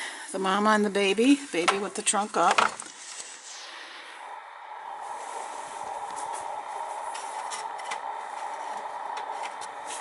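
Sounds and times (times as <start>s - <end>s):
mechanical whir: 4.2s - 10.0s.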